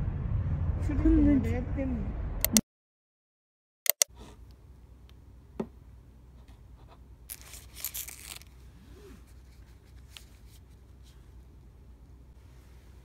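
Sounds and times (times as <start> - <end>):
plastic wrapper rustling and tearing: 7.3 - 8.6.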